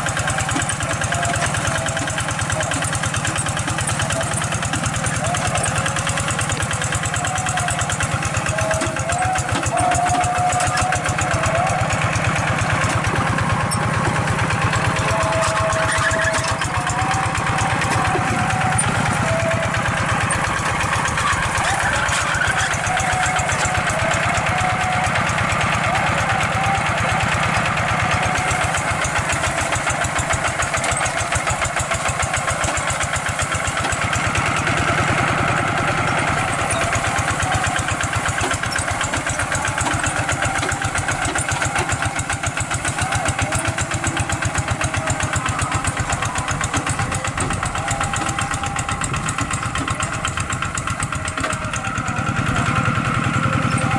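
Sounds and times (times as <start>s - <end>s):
diesel tractor engine running: 0.0s - 53.9s.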